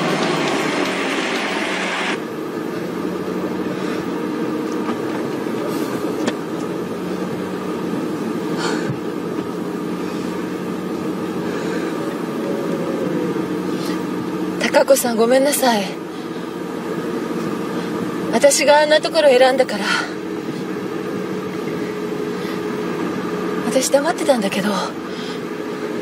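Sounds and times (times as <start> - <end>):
loud hiss: 0.0 - 2.3
car engine and road noise: 0.0 - 26.0.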